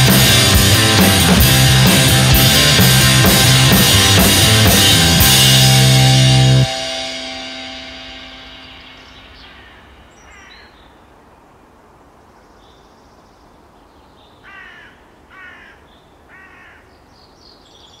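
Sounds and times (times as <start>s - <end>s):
faint outdoor hiss: 0.0s - 18.0s
crow cawing: 9.4s - 10.8s, 14.4s - 16.9s.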